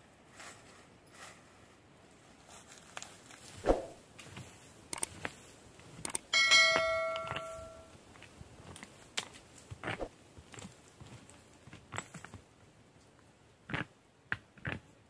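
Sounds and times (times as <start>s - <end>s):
mouse clicks: 4.9s - 5.1s, 6.0s - 6.3s
notification bell ding: 6.4s - 7.9s.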